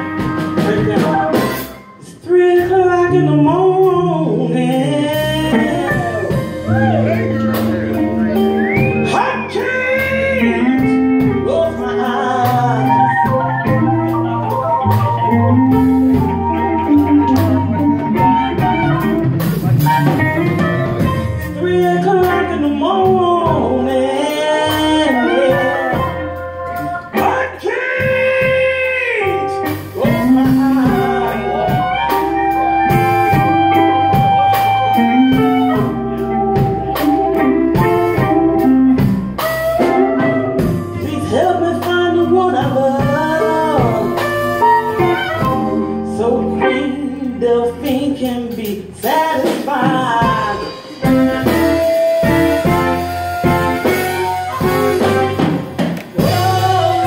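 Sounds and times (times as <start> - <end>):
live blues band playing: 0.0 - 57.0
person singing long wavering notes: 21.6 - 27.4, 28.0 - 36.7.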